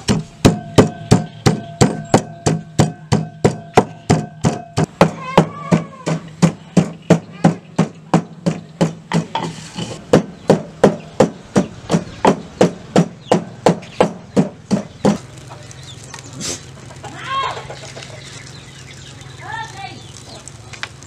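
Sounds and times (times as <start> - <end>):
pestle pounding in mortar: 0.0 - 15.2.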